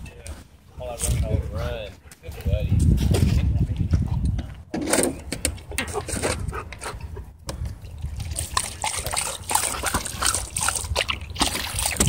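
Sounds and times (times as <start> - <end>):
dog lapping water: 7.8 - 12.0.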